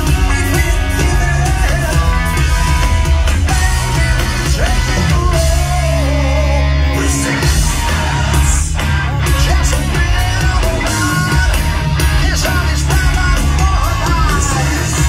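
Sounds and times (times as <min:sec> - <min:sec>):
bass: 0:00.0 - 0:15.0
distorted electric guitars: 0:00.0 - 0:15.0
drums: 0:00.0 - 0:15.0
man singing lead vocal: 0:00.0 - 0:15.0.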